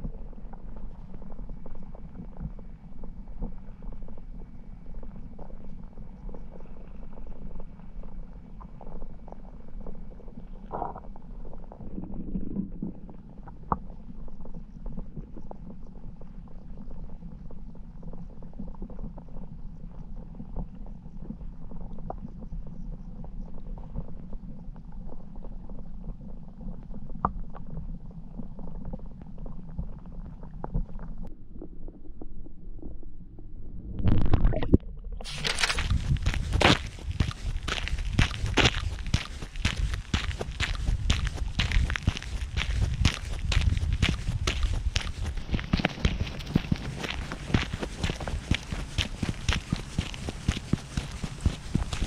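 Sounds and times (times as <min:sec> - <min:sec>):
small underwater clicks: 0:00.0 - 0:31.3
muffled underwater river rumble: 0:00.0 - 0:35.3
water gurgles: 0:33.8 - 0:52.0.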